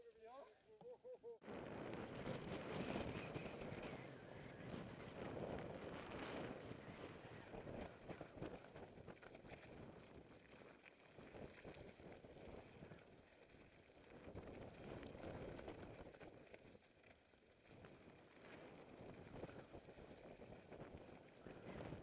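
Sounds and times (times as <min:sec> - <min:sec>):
wind rushing on microphone: 0:01.4 - 0:10.2, 0:17.8 - 0:22.0.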